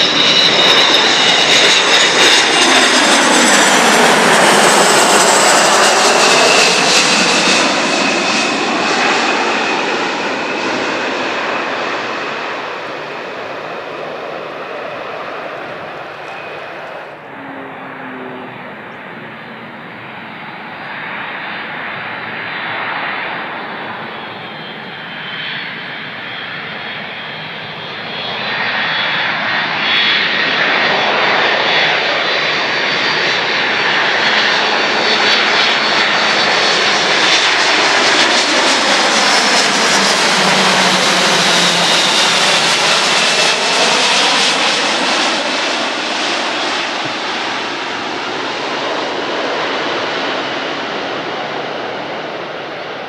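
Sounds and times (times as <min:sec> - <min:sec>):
jet aircraft passing overhead: 0:00.0 - 0:53.0
jet engine whine: 0:00.0 - 0:53.0.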